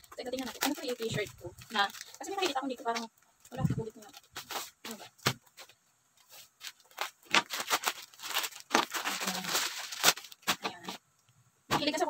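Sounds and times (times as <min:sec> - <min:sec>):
plastic crinkling and tearing: 0:00.0 - 0:11.0.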